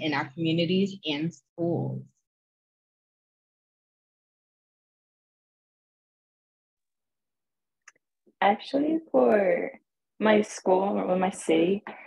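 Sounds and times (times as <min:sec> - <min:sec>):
woman speaking: 0:00.0 - 0:02.1.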